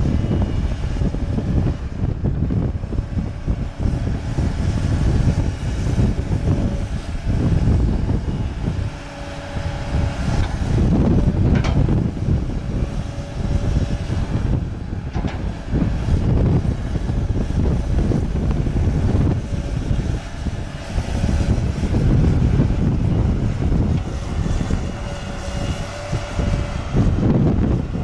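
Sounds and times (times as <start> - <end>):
excavator diesel engine under load: 0.0 - 28.0.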